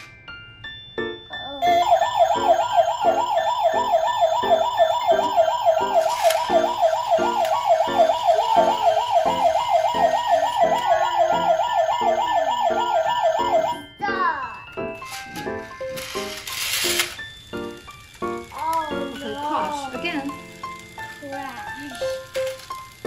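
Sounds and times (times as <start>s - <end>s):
electronic siren warbling: 1.6s - 13.9s.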